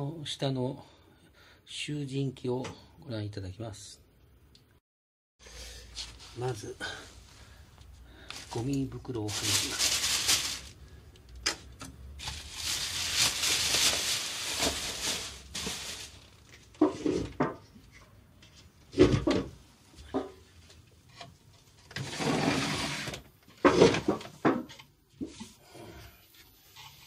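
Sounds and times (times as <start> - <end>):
plastic bag rustling: 5.9 - 11.1, 12.2 - 17.4.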